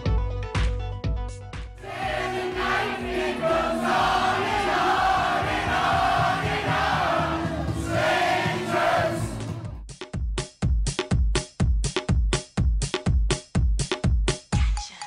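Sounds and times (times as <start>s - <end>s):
song over sound system: 1.8s - 9.6s
crowd singing along: 1.8s - 9.7s.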